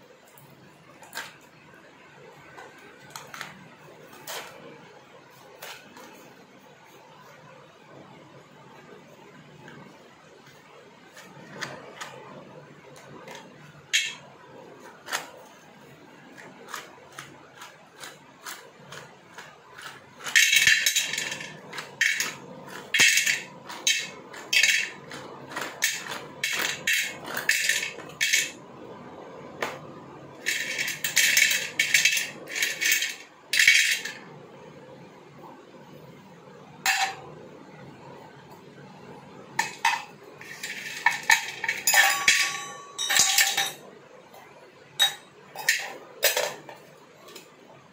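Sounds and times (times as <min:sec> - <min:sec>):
pencils clattering in metal pan: 0:00.9 - 0:01.4, 0:02.5 - 0:04.7, 0:10.4 - 0:28.6, 0:29.6 - 0:34.2, 0:36.9 - 0:37.2, 0:39.6 - 0:43.8, 0:45.0 - 0:47.5.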